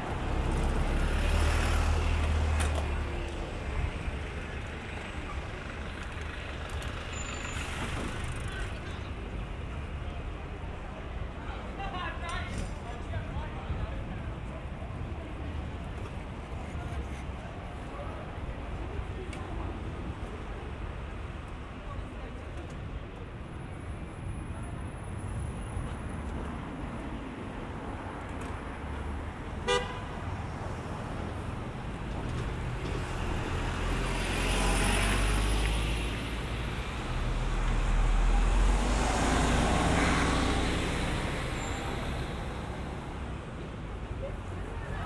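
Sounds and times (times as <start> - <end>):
heavy vehicles passing close: 0.0 - 16.6, 17.3 - 45.0
street traffic passing: 0.0 - 45.0
car horn toot: 29.6 - 30.1.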